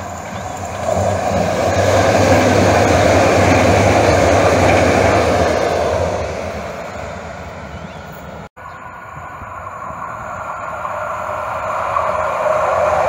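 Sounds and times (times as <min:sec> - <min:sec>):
light rail train passing: 0:00.0 - 0:13.0.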